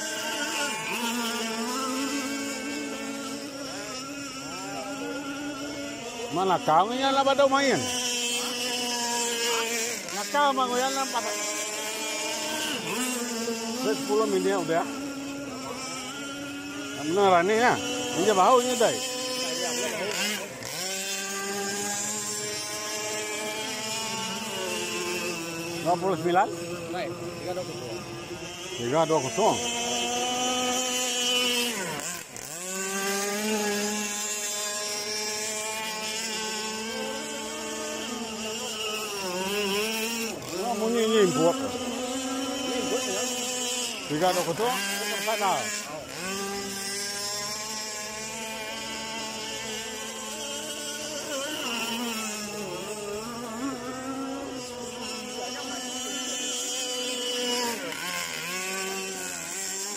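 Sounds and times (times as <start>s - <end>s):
model powerboat motor at high revs: 0.0s - 59.9s.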